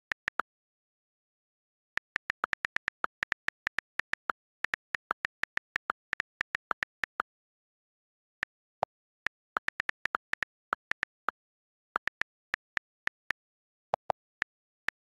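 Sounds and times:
touchscreen keyboard clicks: 2.0s - 7.2s, 8.4s - 11.3s.

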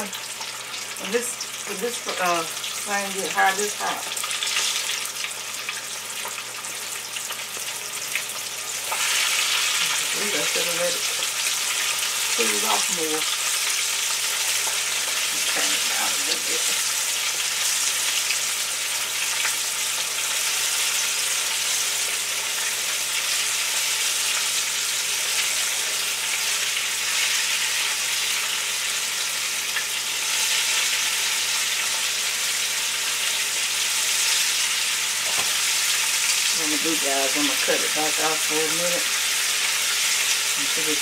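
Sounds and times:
oil sizzling and crackling: 0.0s - 41.0s
person talking: 1.0s - 4.2s, 9.8s - 11.2s, 12.4s - 13.2s, 15.3s - 16.8s, 36.5s - 39.1s, 40.6s - 41.0s.

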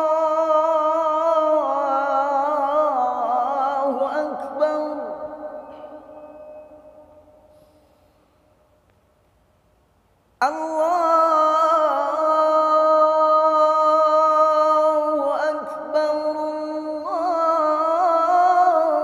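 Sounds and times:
man chanting call to prayer: 0.0s - 7.0s, 10.4s - 19.0s.

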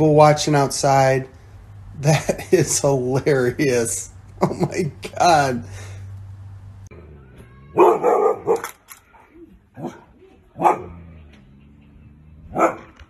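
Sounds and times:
dog barking: 7.7s - 8.8s, 9.8s - 11.1s, 12.5s - 13.0s.

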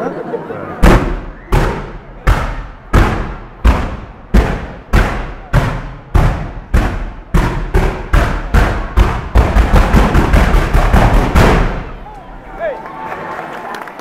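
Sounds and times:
firework bangs with ringing echo: 0.8s - 12.0s.

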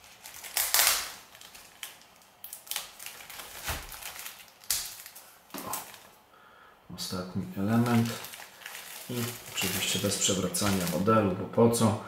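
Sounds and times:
plastic film crinkling: 0.0s - 6.2s, 7.6s - 11.2s
adhesive tape peeling: 0.2s - 5.9s.

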